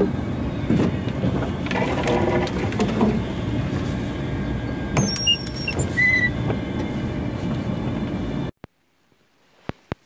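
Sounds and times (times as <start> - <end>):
vehicle engine driving slowly: 0.0 - 8.6
high-pitched squeaks: 5.0 - 6.4.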